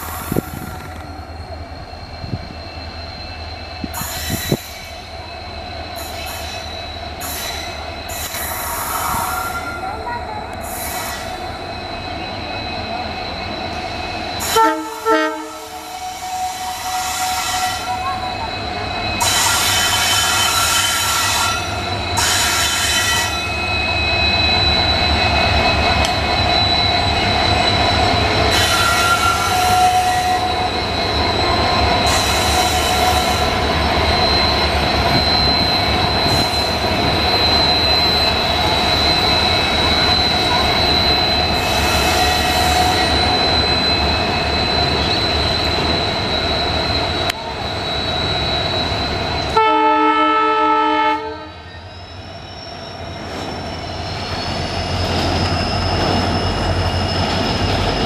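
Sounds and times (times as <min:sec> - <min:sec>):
diesel locomotive engines rumbling: 0:00.0 - 0:58.0
wheel squeal: 0:00.0 - 0:58.0
train horn blasts: 0:14.4 - 0:18.0, 0:49.6 - 0:51.6.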